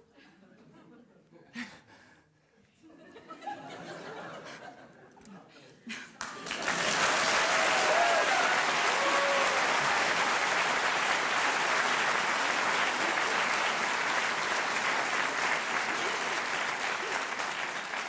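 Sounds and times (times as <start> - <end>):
audience applauding: 6.2 - 18.0
brief cheers: 7.2 - 10.1.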